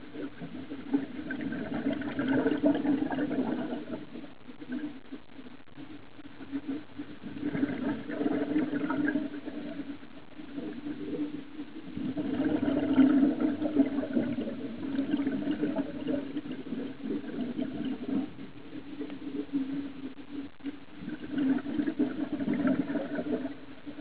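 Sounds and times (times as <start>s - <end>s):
underwater gurgling: 0.0s - 24.0s
underwater low hum: 0.0s - 24.0s.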